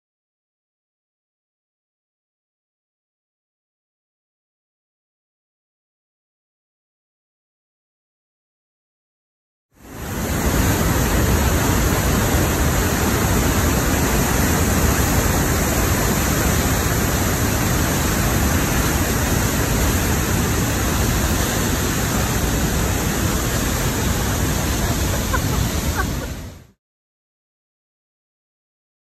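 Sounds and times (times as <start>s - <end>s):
waterfall roaring: 9.8s - 26.7s.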